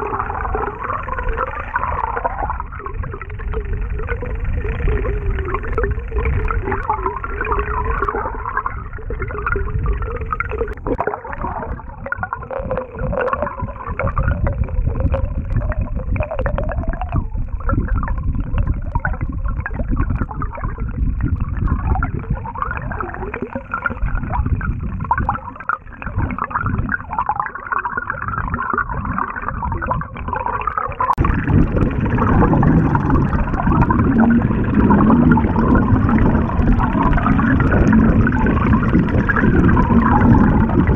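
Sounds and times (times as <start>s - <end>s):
lure blade rattling underwater: 0.2s - 18.9s.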